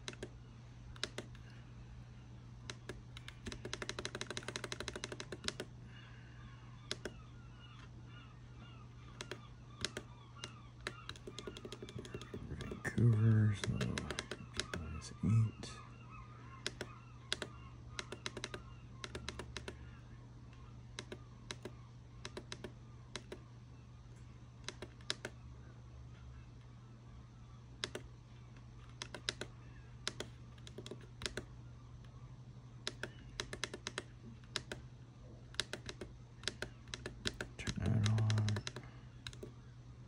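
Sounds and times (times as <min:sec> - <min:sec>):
low steady hum: 0:00.0 - 0:40.0
small buttons clicking: 0:02.7 - 0:05.7, 0:06.9 - 0:07.2, 0:09.1 - 0:14.8, 0:16.6 - 0:19.8, 0:21.0 - 0:23.4, 0:24.6 - 0:25.4, 0:27.8 - 0:28.1, 0:28.9 - 0:31.5, 0:32.8 - 0:34.8, 0:35.5 - 0:39.6.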